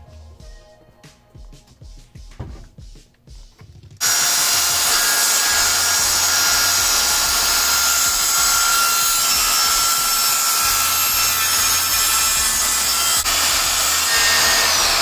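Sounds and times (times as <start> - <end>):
circular saw cutting wood: 4.0 - 15.0.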